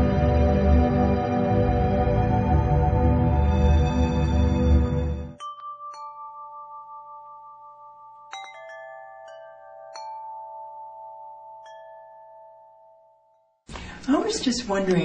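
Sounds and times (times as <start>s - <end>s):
ringing chime notes: 5.3s - 13.6s.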